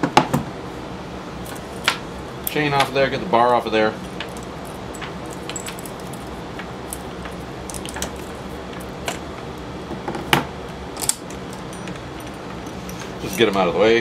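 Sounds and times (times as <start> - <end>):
chainsaw chain clinking: 4.2 - 6.3, 11.0 - 13.8.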